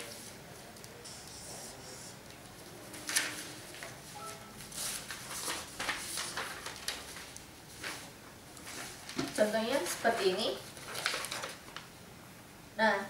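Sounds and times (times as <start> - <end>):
paper sheets rustling: 2.5 - 11.9.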